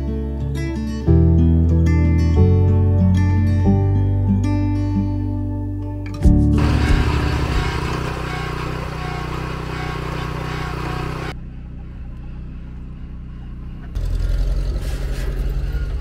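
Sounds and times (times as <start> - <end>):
pump engine running: 6.3 - 11.3.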